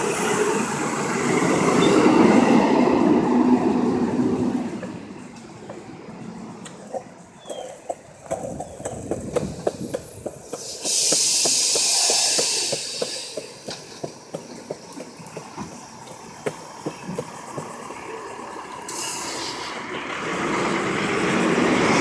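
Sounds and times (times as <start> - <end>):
air brakes hissing: 9.4 - 14.8, 18.8 - 19.9.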